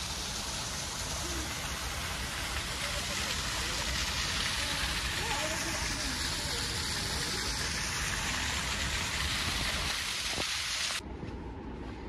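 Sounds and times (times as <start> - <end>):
small waterfall splashing: 0.0 - 11.0.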